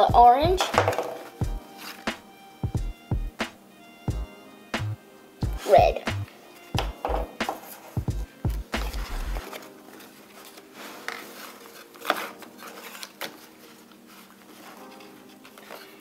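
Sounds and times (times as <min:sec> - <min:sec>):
crayons knocking on table: 0:00.1 - 0:01.3, 0:06.8 - 0:07.8.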